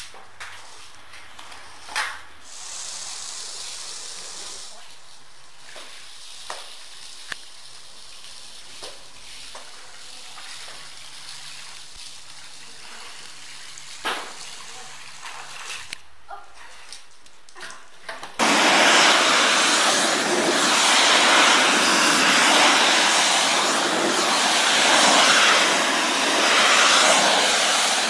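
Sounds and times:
hose spraying water on rug: 0:00.0 - 0:16.0, 0:18.4 - 0:28.0.

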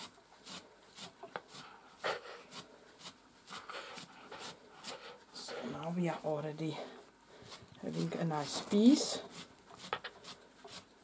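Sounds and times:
stripping tool pulling dog hair: 0:07.5 - 0:10.9.

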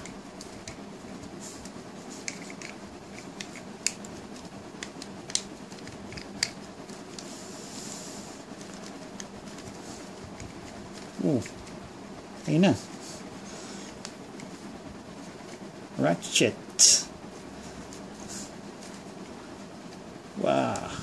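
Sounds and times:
plastic parts clicking: 0:01.6 - 0:07.3.

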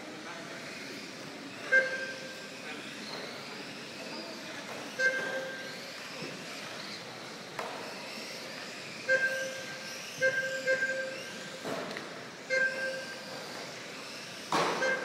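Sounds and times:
electric motors whining: 0:00.0 - 0:15.0
loud high tones: 0:09.0 - 0:11.6, 0:12.4 - 0:13.4.

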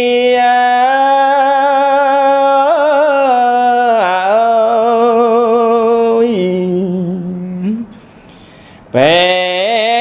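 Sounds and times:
man chanting solo: 0:08.9 - 0:10.0.

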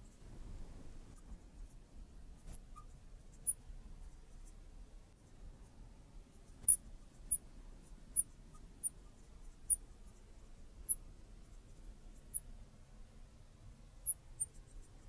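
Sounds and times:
marker squeaking on glass: 0:02.4 - 0:03.6, 0:06.6 - 0:07.4.

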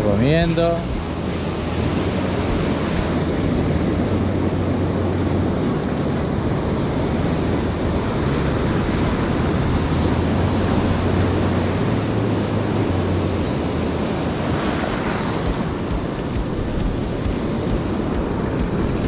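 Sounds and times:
ocean surf: 0:00.0 - 0:19.0
wind buffeting microphone: 0:00.0 - 0:19.0.

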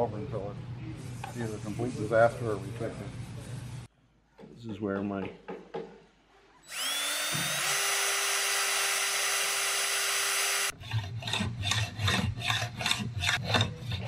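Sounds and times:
drill whining into wood: 0:06.7 - 0:10.7
hand file scraping metal: 0:10.5 - 0:14.0.

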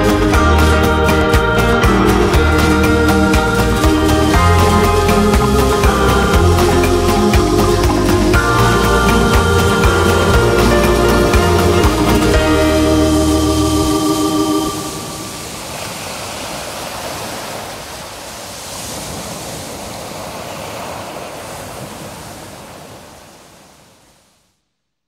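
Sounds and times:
music final notes ringing: 0:00.0 - 0:15.4
ocean waves washing in: 0:00.0 - 0:24.5.

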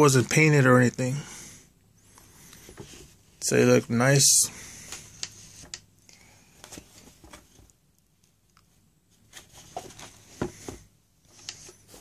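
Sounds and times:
soft handling rustles: 0:06.4 - 0:12.0.

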